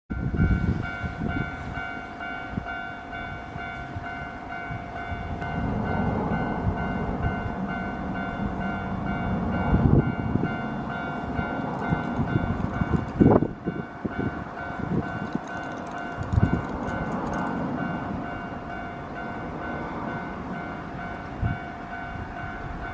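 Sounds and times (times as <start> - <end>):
level-crossing warning bell: 0.1 - 22.9
steady tone: 0.1 - 22.9
low rumbling noise: 3.4 - 15.2.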